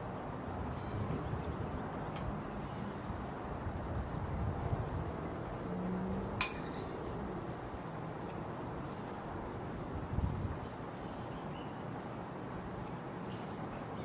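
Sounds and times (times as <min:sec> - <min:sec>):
low wind rumble: 0:00.0 - 0:10.8
sharp metallic clink: 0:06.4 - 0:07.0.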